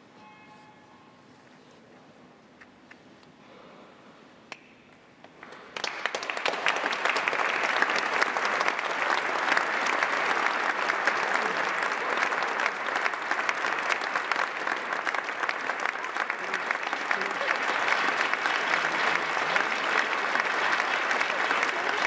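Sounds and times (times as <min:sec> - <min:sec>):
audience applause: 0:05.4 - 0:22.0.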